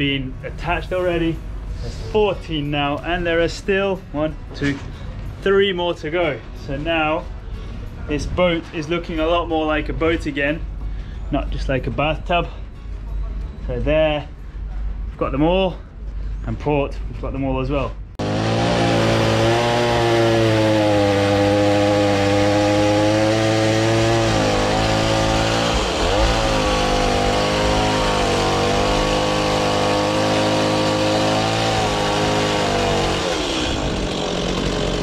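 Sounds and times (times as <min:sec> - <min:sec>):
chainsaw cutting timber: 0:18.2 - 0:35.0.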